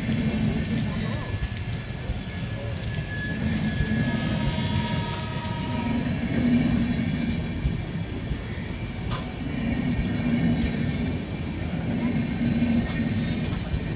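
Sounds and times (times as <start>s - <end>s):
train wheels rumbling on rails: 0.0s - 13.9s.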